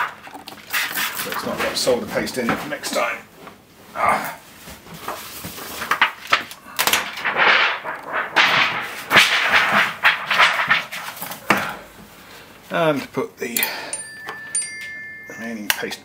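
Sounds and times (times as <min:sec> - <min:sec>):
stencil rubbing and scraping: 0:07.2 - 0:11.2.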